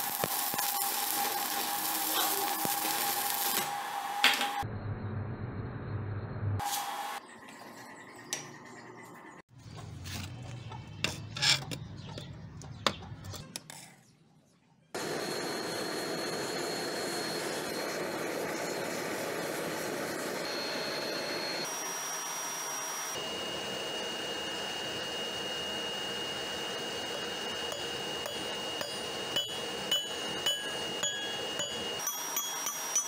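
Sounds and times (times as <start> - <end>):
knocks and clicks: 9.8 - 13.7
gas forge roaring: 15.0 - 21.8, 23.1 - 32.0.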